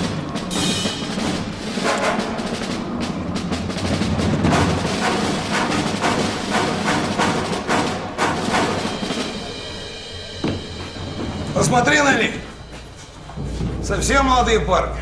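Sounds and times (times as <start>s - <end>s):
drum and percussion hits: 0.0s - 14.8s
sustained low bass: 8.9s - 15.0s.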